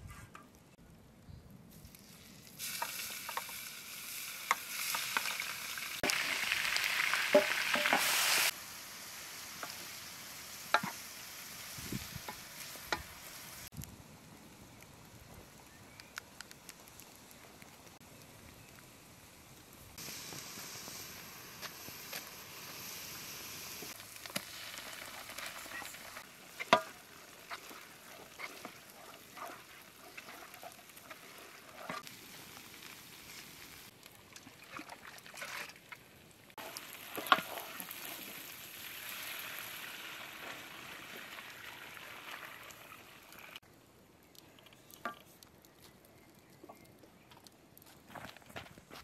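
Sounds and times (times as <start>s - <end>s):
pot hissing and bubbling: 1.7s - 35.1s, 36.5s - 48.2s
wooden spoon scraping a bowl: 25.6s - 32.0s.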